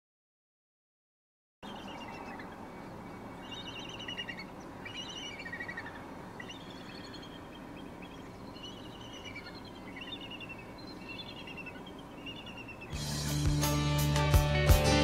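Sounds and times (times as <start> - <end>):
eagles chittering calls: 1.6 - 13.4
steady background hiss: 1.6 - 13.4.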